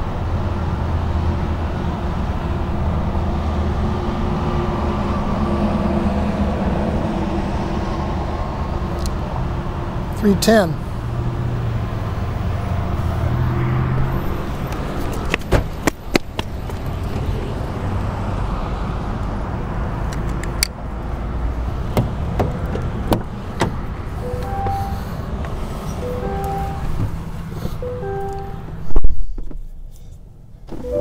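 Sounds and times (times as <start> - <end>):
sharp clicks and knocks: 22.0 - 23.8
electronic chime tones: 24.3 - 25.0, 26.0 - 26.9.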